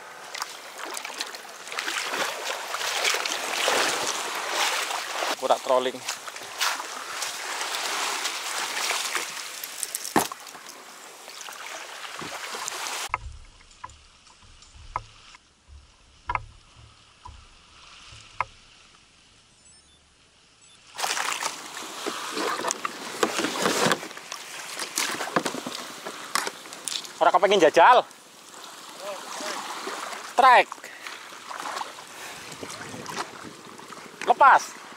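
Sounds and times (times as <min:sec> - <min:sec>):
small waves washing on sand: 0:00.0 - 0:13.1, 0:20.9 - 0:34.9
water sloshing around a kayak: 0:00.0 - 0:18.7, 0:20.9 - 0:27.3, 0:28.2 - 0:34.9
wind buffeting the microphone: 0:32.2 - 0:34.2.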